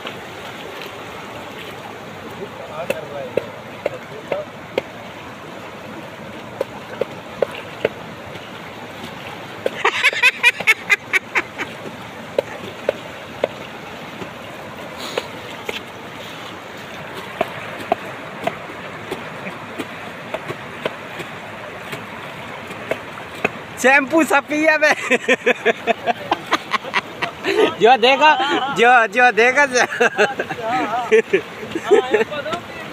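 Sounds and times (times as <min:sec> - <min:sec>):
water splashing from hand scoops: 0:00.0 - 0:27.5
floodwater rushing: 0:00.0 - 0:32.9.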